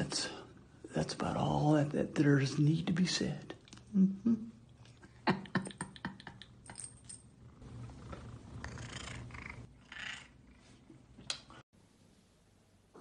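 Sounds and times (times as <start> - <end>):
cat purring: 7.4 - 10.6.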